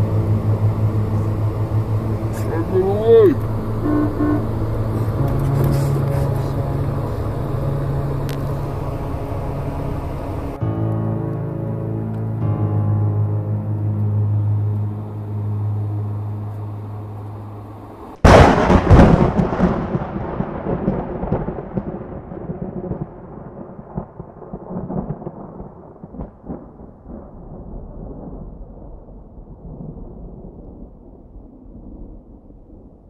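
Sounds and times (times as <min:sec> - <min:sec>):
low held music tone: 0:00.0 - 0:18.2
thunderclap with rumble: 0:18.2 - 0:33.0.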